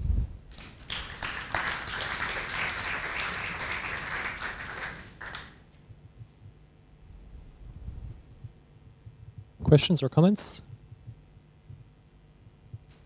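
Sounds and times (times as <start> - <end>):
audience applauding: 0.5 - 5.6.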